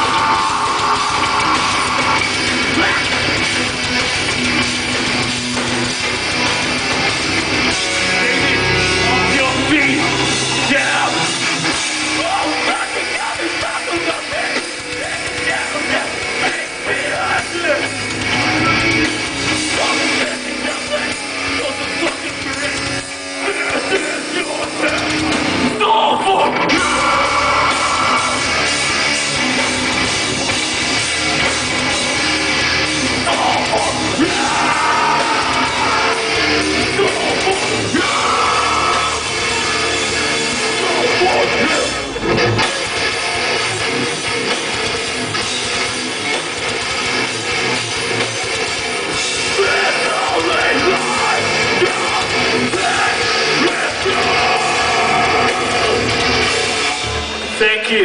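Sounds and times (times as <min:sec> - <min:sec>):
vocals: 0:00.0 - 0:04.0, 0:07.5 - 0:29.6, 0:33.0 - 0:43.0, 0:49.2 - 0:58.0
drums: 0:00.0 - 0:58.0
electric guitars: 0:00.0 - 0:58.0.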